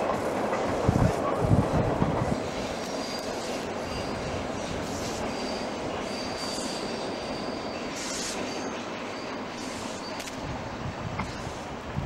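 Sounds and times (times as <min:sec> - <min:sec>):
train rolling on track: 0:00.0 - 0:12.0
high wheel squeal: 0:02.4 - 0:10.4.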